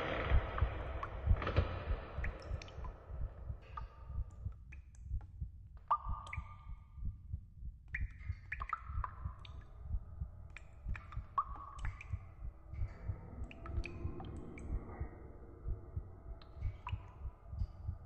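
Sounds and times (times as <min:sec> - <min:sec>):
faint creaky tone: 0:08.1 - 0:18.0.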